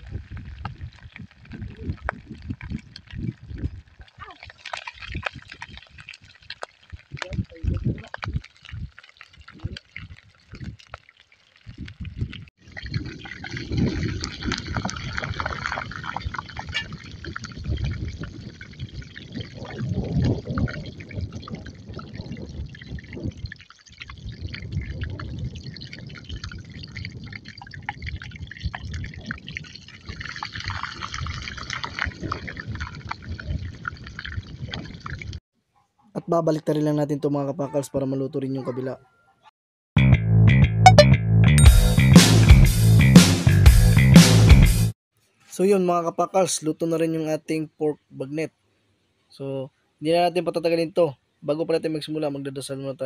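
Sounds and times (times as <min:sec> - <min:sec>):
pork deep-frying in oil: 0:00.0 - 0:35.4.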